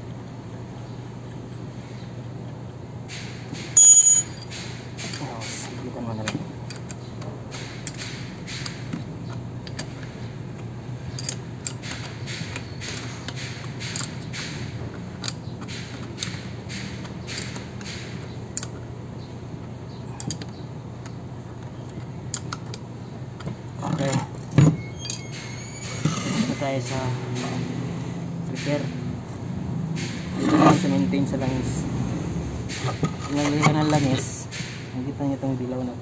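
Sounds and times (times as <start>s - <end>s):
ratcheting wrench clicking: 15.2s - 18.8s.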